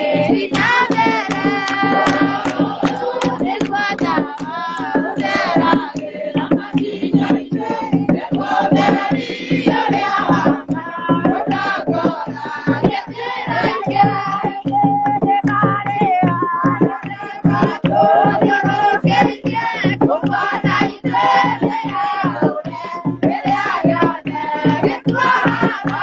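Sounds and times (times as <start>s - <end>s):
congregation singing a hymn: 0.0s - 14.7s, 17.1s - 26.0s
hand drum beating: 0.0s - 26.0s
rhythmic hand clapping: 0.0s - 26.0s.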